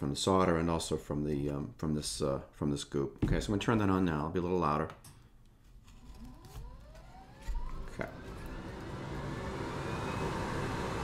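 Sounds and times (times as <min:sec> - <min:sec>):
fan motor whine: 0:05.9 - 0:11.0.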